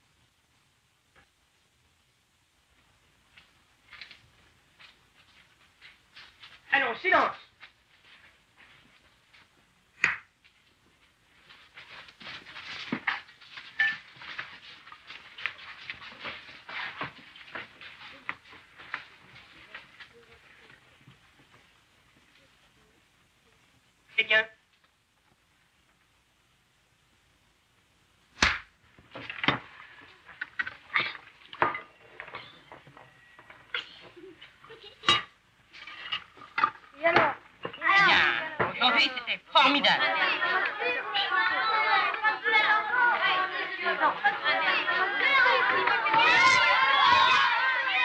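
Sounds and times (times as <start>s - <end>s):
hand clap: 10.0s - 10.3s
boys scrambling over wooden benches: 11.4s - 21.4s, 40.0s - 48.0s
plates and spoons clinking: 13.1s - 14.1s, 34.8s - 36.8s.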